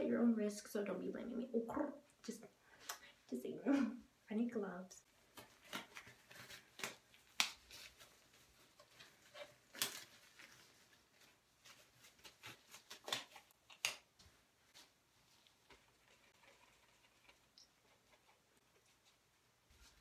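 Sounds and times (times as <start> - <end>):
disposable gloves snapping: 5.3 - 7.8, 12.7 - 14.2.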